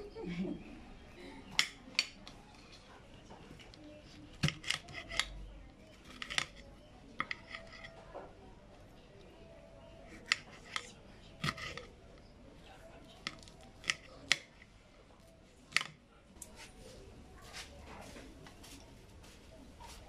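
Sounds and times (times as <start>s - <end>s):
knife slicing pepper with clicks: 10.2s - 11.8s.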